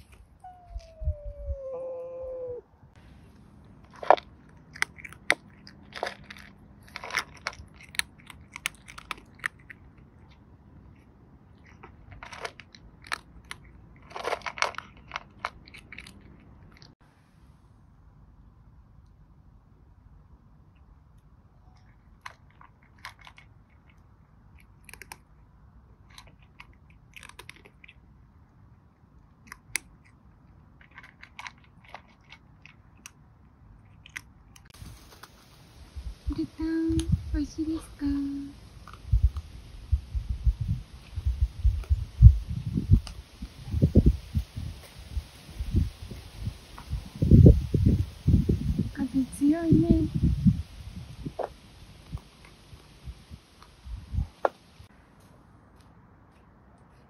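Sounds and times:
cat crunching dry kibble: 3.3 - 16.9, 21.1 - 35.5, 37.5 - 39.8.

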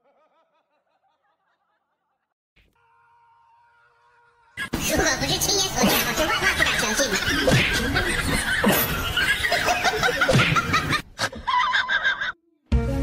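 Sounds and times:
people laughing: 0.0 - 2.3, 5.6 - 12.4.

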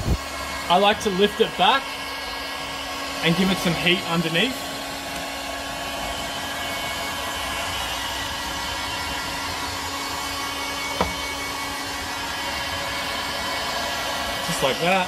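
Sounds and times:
hot-air blower running: 0.0 - 15.0.

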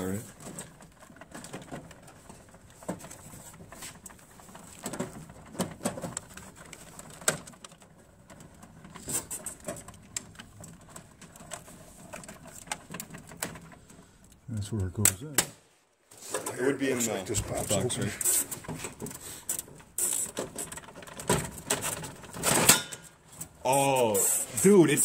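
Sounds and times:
vending machine clicks and rattles: 16.5 - 23.5.

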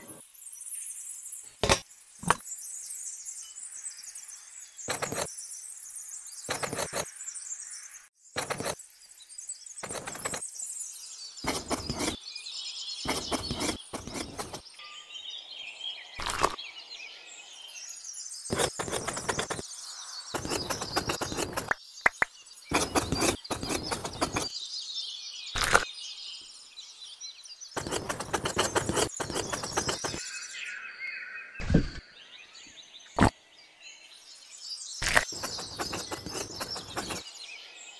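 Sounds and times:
trowel scraping mortar: 4.9 - 5.3, 6.5 - 7.1, 8.4 - 8.8, 9.8 - 10.4, 11.4 - 12.2, 13.1 - 14.6, 18.5 - 19.6, 20.4 - 21.8, 22.7 - 24.5, 27.8 - 30.2, 35.0 - 37.2
birds chirping: 6.3 - 8.8, 9.8 - 37.9.

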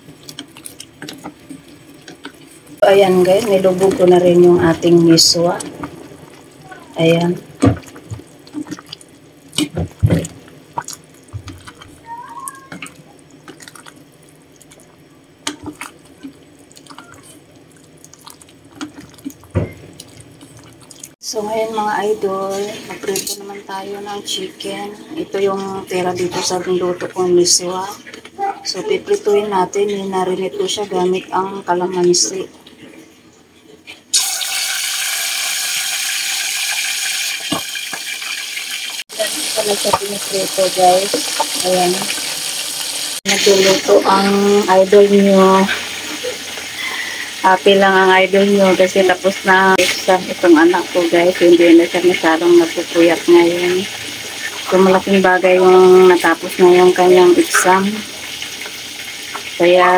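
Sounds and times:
soup boiling in a pot: 0.0 - 21.2, 34.1 - 48.3, 49.1 - 59.6
chicken sizzling in frying oil: 34.0 - 59.9.

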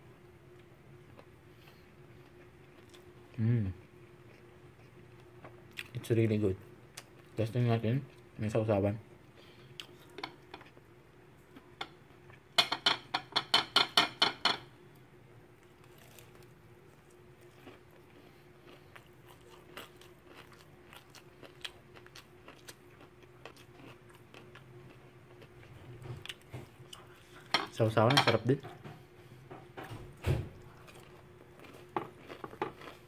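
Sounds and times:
low steady hum: 0.0 - 33.0
fried chicken crunching: 15.6 - 27.1, 30.7 - 33.0.

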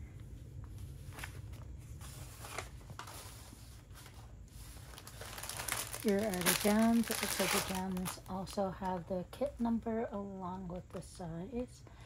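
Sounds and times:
low steady hum: 0.0 - 12.0
paper and plastic rustling: 0.7 - 9.0.

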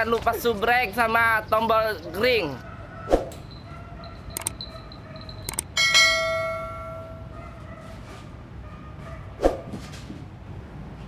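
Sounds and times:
mouse clicks: 4.3 - 4.6
bright bell ding: 4.6 - 7.2.

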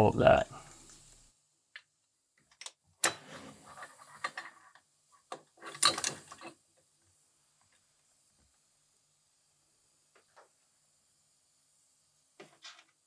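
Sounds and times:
metal clicks and clatter of parts: 2.4 - 3.3, 5.3 - 6.6, 12.4 - 13.0.

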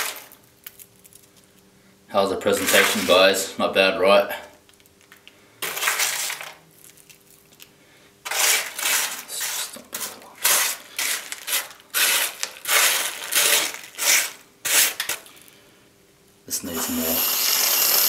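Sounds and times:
chocolate balls crunching: 0.0 - 1.7, 4.6 - 15.6.

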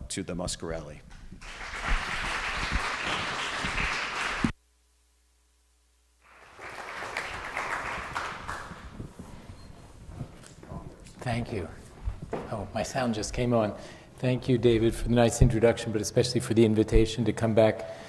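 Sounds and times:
audience applauding: 1.4 - 4.6, 6.2 - 9.2.

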